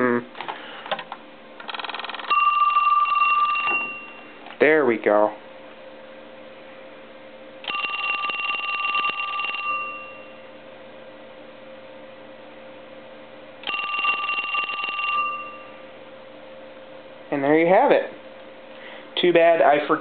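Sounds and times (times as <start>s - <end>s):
telephone bell ringing: 1.7s - 4.4s, 7.6s - 10.5s, 13.6s - 15.8s.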